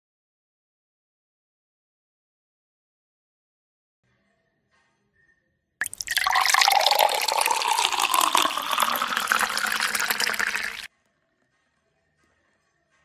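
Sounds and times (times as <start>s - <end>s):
juice pouring into a glass: 5.8s - 10.9s.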